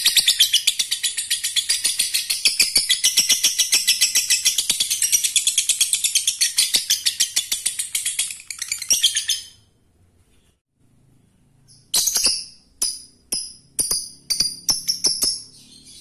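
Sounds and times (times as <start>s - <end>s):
bird chirps: 0.0s - 16.0s.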